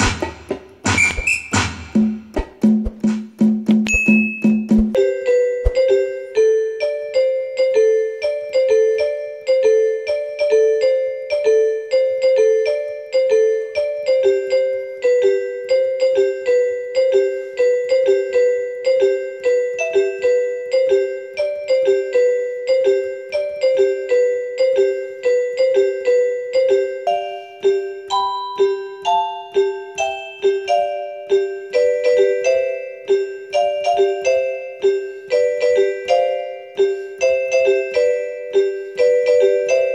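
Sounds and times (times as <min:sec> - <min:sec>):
light keyboard tune: 0:03.8 - 0:39.9.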